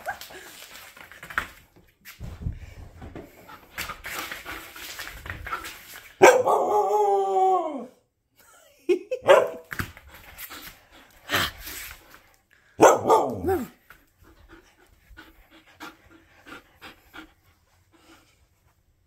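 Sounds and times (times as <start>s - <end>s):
dog barking calls: 6.2s - 6.8s, 12.8s - 13.7s
dog panting: 14.2s - 18.8s.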